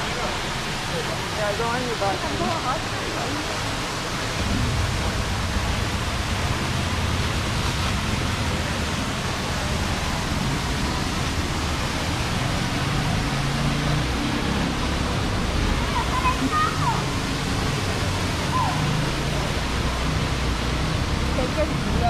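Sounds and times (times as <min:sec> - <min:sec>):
waterfall rushing: 0:00.0 - 0:22.0
low rumble: 0:04.2 - 0:12.0.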